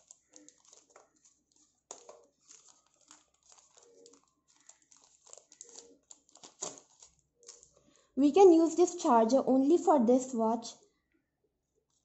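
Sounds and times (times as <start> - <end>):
plastic pouch crinkling: 0.0 - 7.8.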